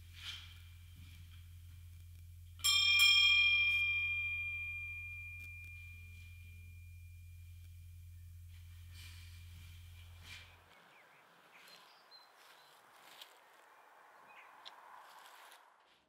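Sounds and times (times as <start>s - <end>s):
small bell ringing: 2.6s - 8.0s.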